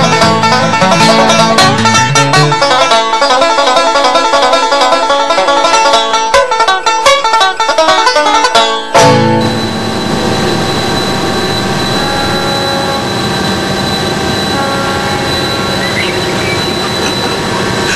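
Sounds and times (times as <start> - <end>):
banjo music: 0.0 - 13.1, 14.6 - 17.9
boat horn long blast: 9.0 - 17.6.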